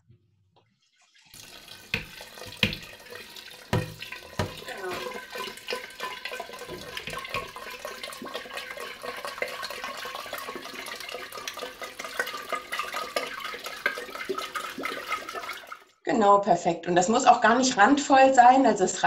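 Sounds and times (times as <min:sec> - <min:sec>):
tap water filling a jar: 0:01.3 - 0:15.9.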